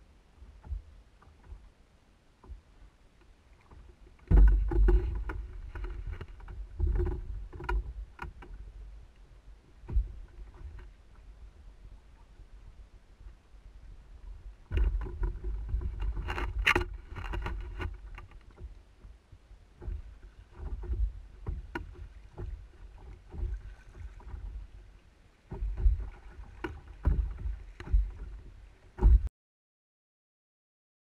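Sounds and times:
water washing against hull: 0:00.0 - 0:29.3
paddle strokes splashing: 0:02.4 - 0:29.3
sharp knocks on canoe: 0:03.8 - 0:08.6, 0:09.8 - 0:10.8, 0:25.5 - 0:29.3.

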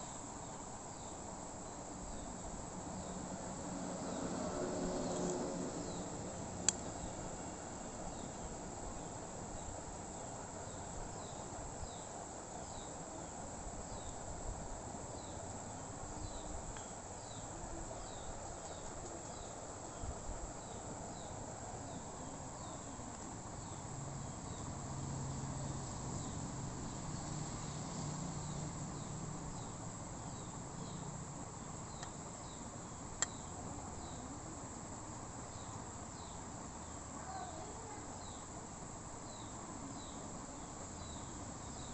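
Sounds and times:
insect chirping: 0:00.0 - 0:41.9
low steady hiss: 0:00.0 - 0:41.9.

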